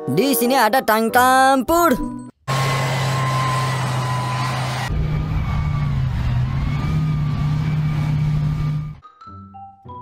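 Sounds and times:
tank engine low hum: 0:02.5 - 0:09.0
high wavering whine: 0:02.8 - 0:09.0.

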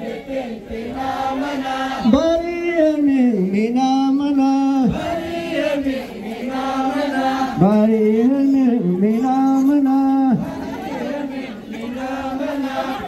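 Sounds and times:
man chanting into microphone: 0:02.0 - 0:05.3, 0:07.6 - 0:10.5.

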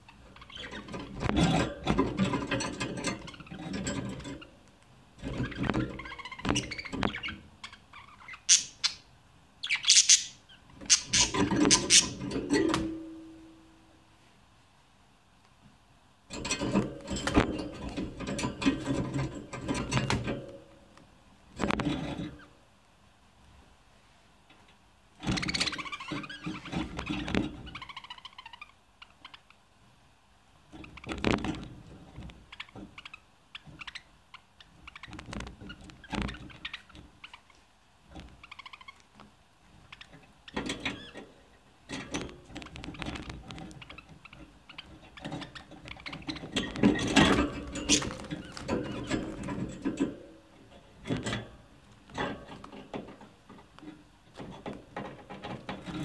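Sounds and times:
budgerigar chattering: 0:08.4 - 0:09.0, 0:09.7 - 0:12.2.

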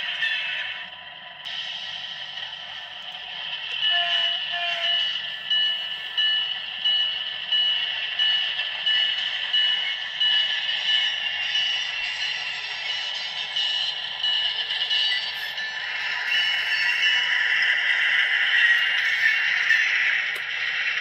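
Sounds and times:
locomotive engine running: 0:00.0 - 0:21.0
locomotive bell ringing: 0:03.5 - 0:19.8.

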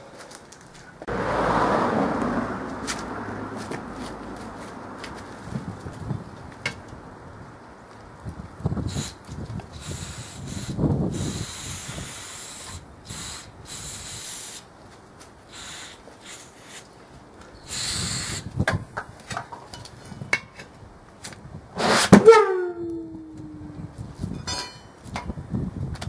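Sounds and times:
aerosol can spraying: 0:15.5 - 0:16.8.

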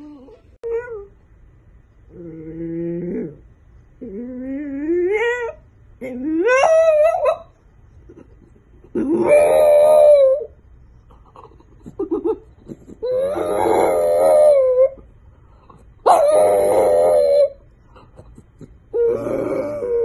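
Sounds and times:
dog howling: 0:04.0 - 0:07.5, 0:09.0 - 0:10.6, 0:13.0 - 0:15.1, 0:16.0 - 0:17.6, 0:18.9 - 0:20.0
dog yipping: 0:05.2 - 0:07.5, 0:09.0 - 0:10.5, 0:16.0 - 0:17.6.

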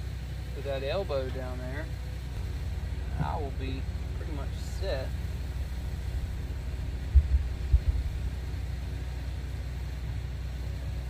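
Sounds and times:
diesel engine rumbling: 0:00.0 - 0:11.0
dull low thumps: 0:02.3 - 0:08.7.

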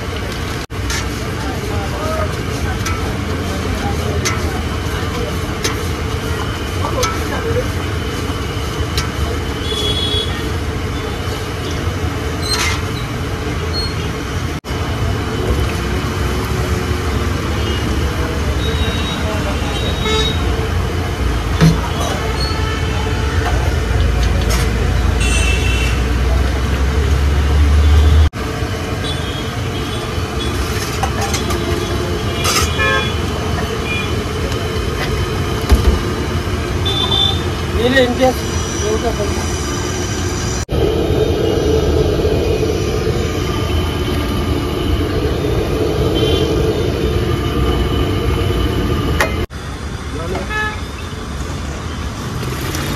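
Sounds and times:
road traffic rumble: 0:00.0 - 0:52.9
street stall noise: 0:00.0 - 0:52.9
vehicle horn toots: 0:09.6 - 0:10.5, 0:25.2 - 0:26.1, 0:31.7 - 0:33.2, 0:36.8 - 0:37.5.

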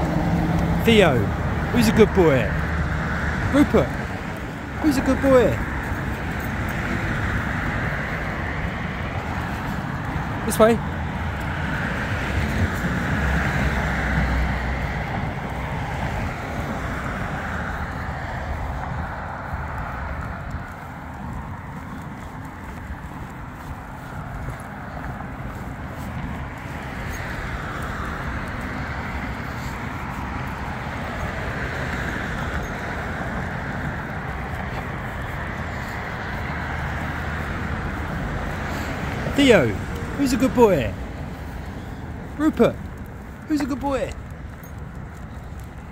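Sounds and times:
road traffic hiss: 0:00.0 - 0:45.9
wind buffeting microphone: 0:05.4 - 0:40.2.

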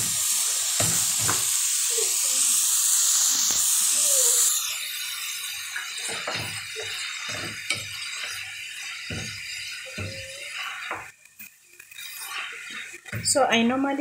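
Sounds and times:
cabbage sizzling in hot oil: 0:00.0 - 0:14.0
wooden spoon stirring and scraping: 0:06.0 - 0:11.2, 0:11.9 - 0:13.7.

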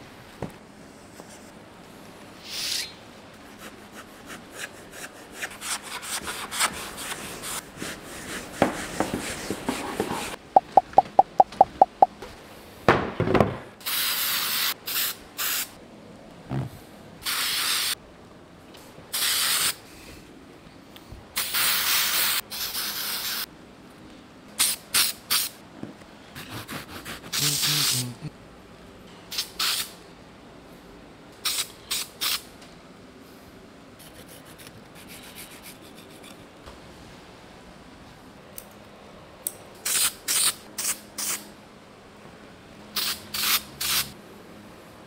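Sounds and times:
short hissing sprays: 0:27.3 - 0:28.1.

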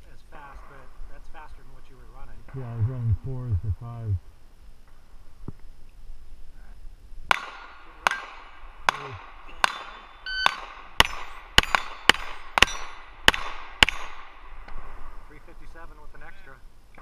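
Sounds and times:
steel plates ringing: 0:07.3 - 0:13.2
pistol shots: 0:07.3 - 0:14.4.

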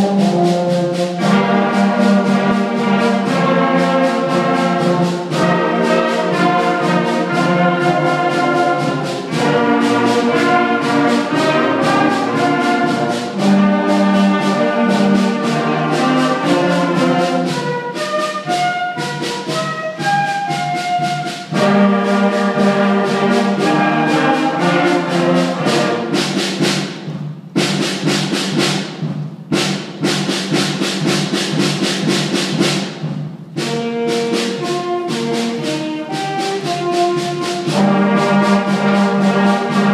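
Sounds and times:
concert band playing: 0:00.0 - 0:39.9
sharp percussion strikes: 0:00.0 - 0:39.9.

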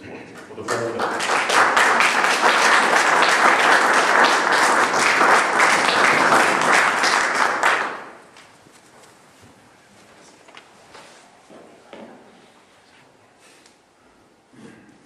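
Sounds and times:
audience applause: 0:00.5 - 0:08.3.

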